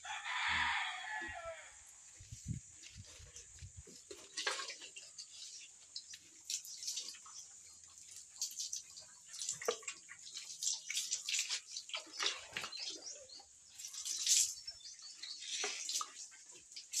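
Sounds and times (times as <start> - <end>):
water splashing on concrete floor: 6.3 - 13.1, 13.7 - 14.8.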